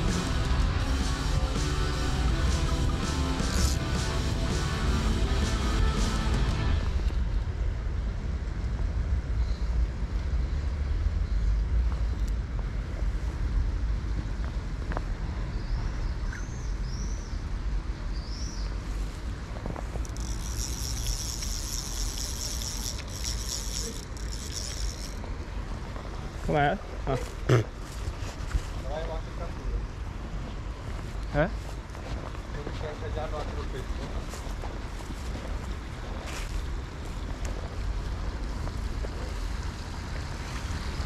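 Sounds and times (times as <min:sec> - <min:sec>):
high buzzing trill: 0:00.0 - 0:07.0
steady low rumble: 0:00.0 - 0:15.0.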